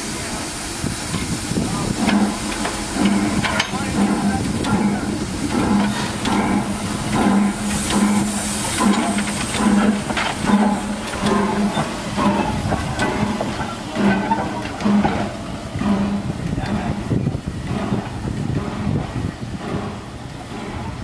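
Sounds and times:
low rhythmic locomotive beat: 0:00.0 - 0:21.0
steam locomotive hissing: 0:00.0 - 0:21.0.

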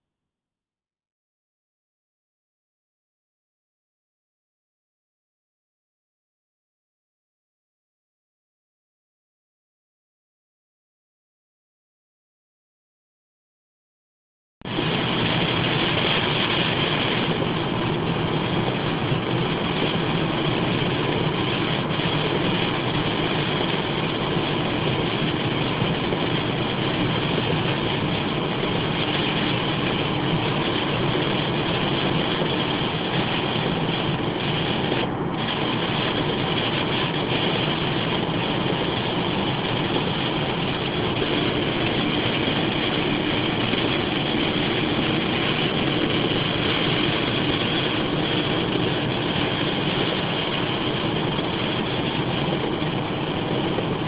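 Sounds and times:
car engine: 0:14.7 - 0:54.0
tyres on wet road: 0:14.7 - 0:54.0.

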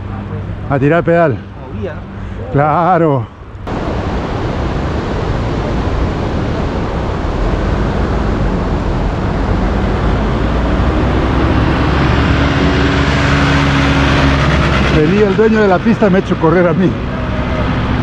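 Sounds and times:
vehicle engine hum: 0:00.0 - 0:18.0
wind noise on microphone: 0:03.6 - 0:15.0.

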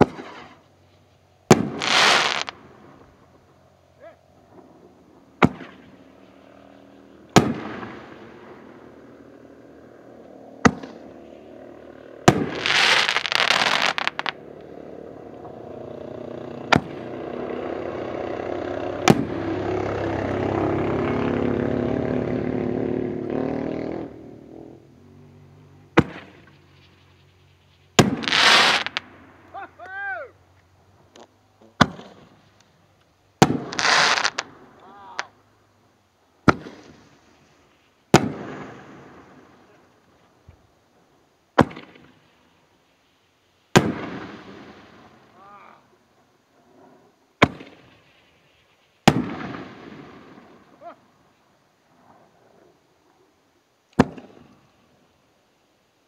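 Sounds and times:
steady noise: 0:00.0 - 0:56.0
firework shells banging: 0:19.0 - 0:19.4, 0:28.0 - 0:29.2, 0:33.4 - 0:35.3.

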